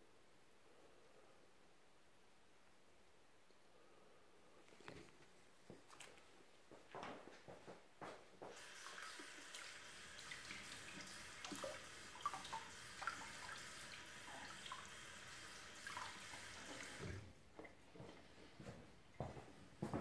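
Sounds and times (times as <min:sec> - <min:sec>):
water running: 0:08.4 - 0:17.8.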